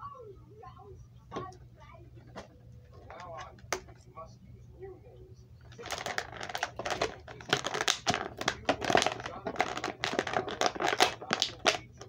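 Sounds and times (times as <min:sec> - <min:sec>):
plastic packaging crinkling: 0:05.7 - 0:12.0.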